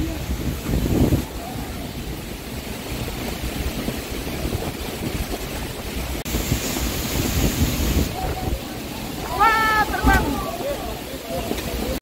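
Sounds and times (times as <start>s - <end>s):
gusty wind buffeting microphone: 0.0s - 12.0s
rain falling: 0.0s - 12.0s
bright hiss: 6.3s - 8.5s.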